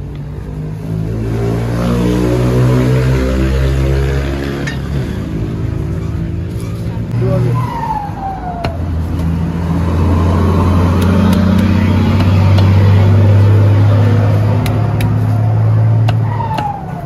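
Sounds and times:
vehicle engine drone: 0.0 - 17.0
cleaver chopping on wooden board: 10.9 - 13.0, 14.6 - 15.3, 16.0 - 16.8.

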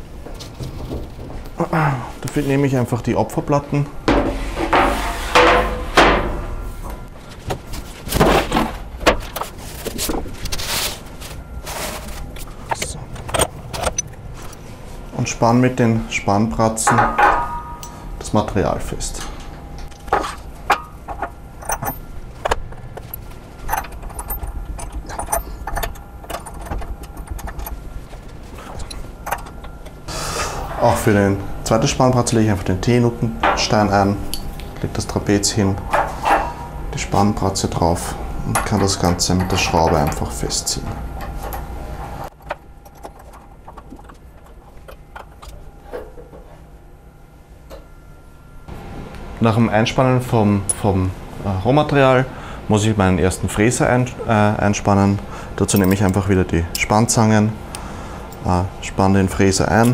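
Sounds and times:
metal hardware clicking and clinking: 12.7 - 14.6, 16.9 - 18.1, 19.1 - 30.0, 55.7 - 56.9.

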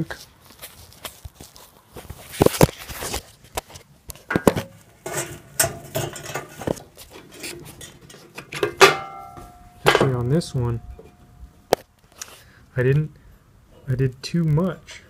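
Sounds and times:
metal parts clinking and clanking: 4.2 - 11.4
loud ringing metal clank: 8.6 - 11.6.

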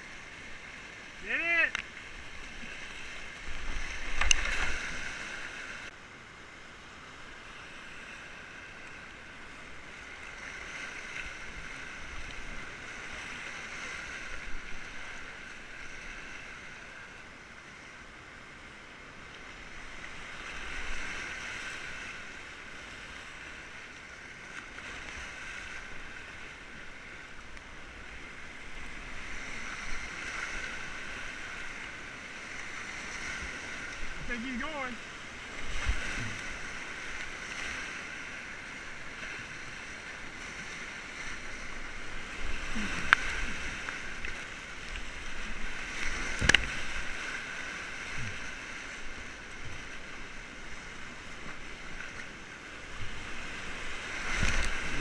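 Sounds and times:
paddle splashes: 0.0 - 5.9, 7.4 - 17.9, 19.2 - 55.0
whitewater rapids rushing: 0.0 - 5.9, 24.8 - 55.0
waves breaking over bow: 0.0 - 55.0.

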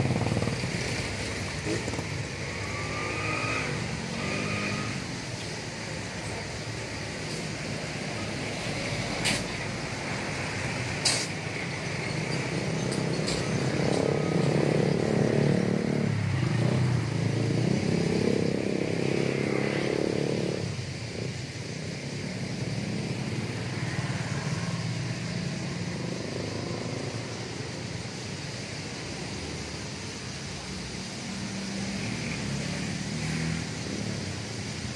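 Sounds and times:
vehicle passing by: 0.0 - 5.3, 12.5 - 21.4, 31.4 - 34.9.

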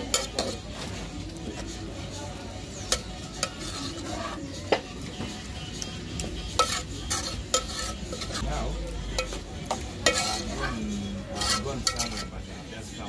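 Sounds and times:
spoon clinking against pot: 0.0 - 0.7, 2.8 - 4.1, 6.6 - 8.4, 9.2 - 10.7, 11.3 - 12.3
spoon scraping through sauce: 2.9 - 4.5, 6.5 - 8.5, 10.0 - 12.4.

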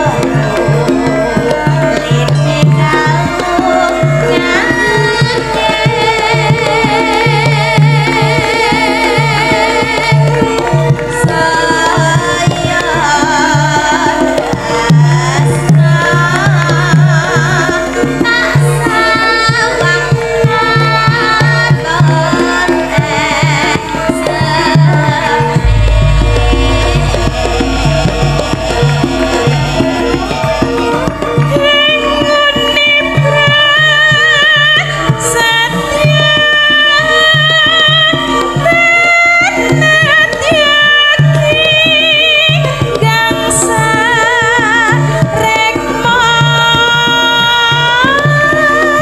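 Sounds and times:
hand drum beating: 0.0 - 49.0
woman singing with vibrato: 1.6 - 30.4, 31.4 - 49.0
deep bass: 25.6 - 30.1.

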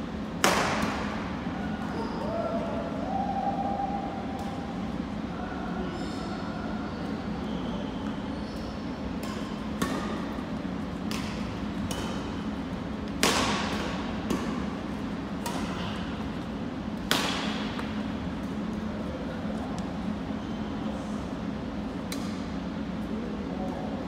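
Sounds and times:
steady low hum: 0.0 - 24.0
rackets hitting shuttlecock: 0.4 - 1.1, 9.2 - 14.7, 15.4 - 16.1, 17.0 - 18.6.

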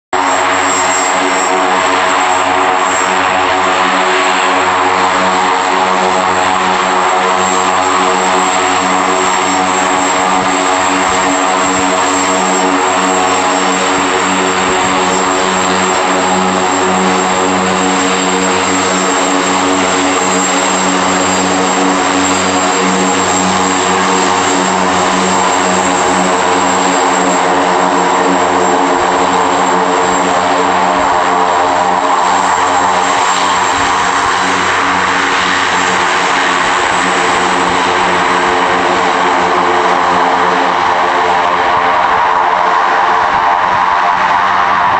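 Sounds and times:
high turbine whine: 0.0 - 44.9
propeller drone: 0.0 - 44.9.

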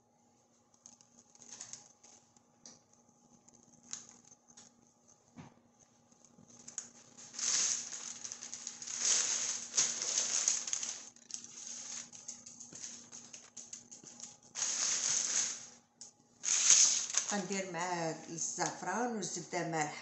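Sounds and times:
paper crinkling and rustling: 0.8 - 4.8, 6.0 - 15.8, 16.4 - 17.7.

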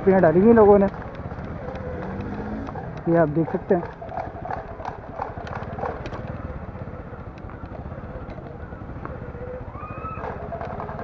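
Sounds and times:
motorcycle engine chugging: 0.0 - 11.0
small clicks and rattles: 10.1 - 11.0.

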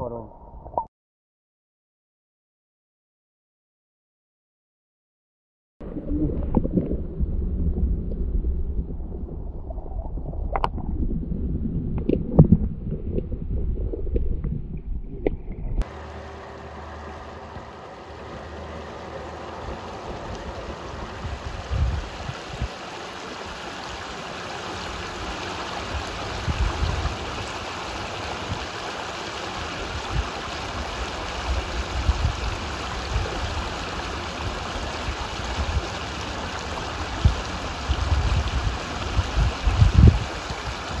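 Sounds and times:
creek water over gravel: 15.2 - 41.0.

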